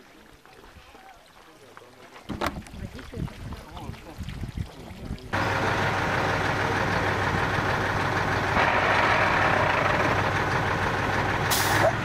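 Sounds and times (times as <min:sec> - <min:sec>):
truck engine running: 0:05.4 - 0:12.0.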